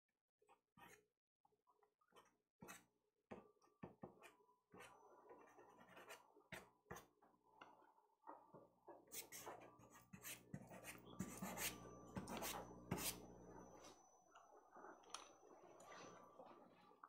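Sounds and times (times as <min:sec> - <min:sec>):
pastel scratching on paper: 0:09.1 - 0:13.2.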